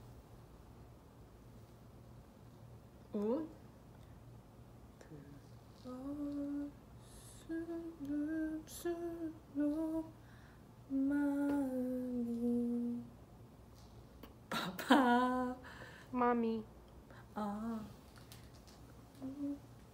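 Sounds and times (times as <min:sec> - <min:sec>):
woman humming: 0:05.0 - 0:10.1, 0:19.2 - 0:19.7.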